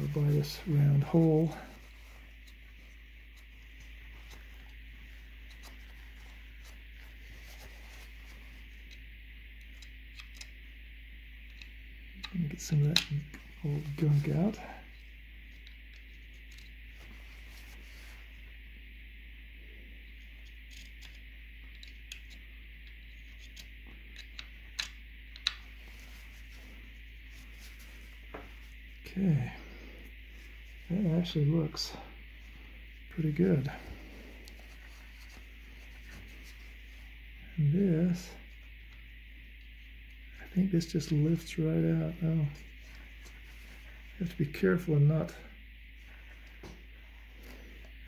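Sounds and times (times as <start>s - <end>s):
paper towel rubbing plastic: 0.0s - 8.9s, 33.7s - 37.1s
low hum: 0.0s - 48.0s
steady hiss: 0.0s - 48.0s.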